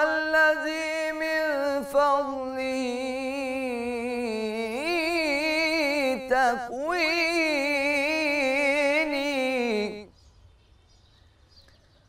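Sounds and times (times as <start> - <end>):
man singing solo: 0.0 - 10.1.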